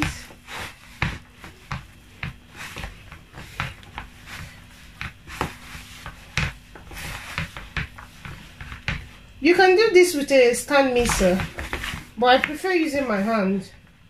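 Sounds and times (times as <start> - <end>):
hands squelching wet dough: 0.0 - 9.3.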